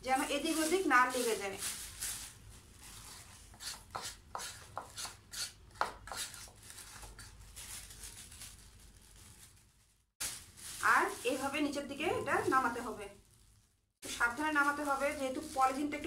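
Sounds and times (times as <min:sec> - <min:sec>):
metal spoon scraping plastic bowl: 0:03.5 - 0:07.3.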